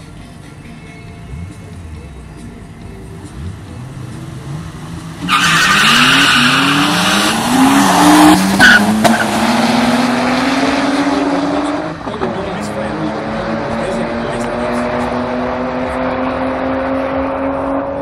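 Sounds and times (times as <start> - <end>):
car engines revving: 1.3 - 18.0
tyre squeal: 5.2 - 7.4.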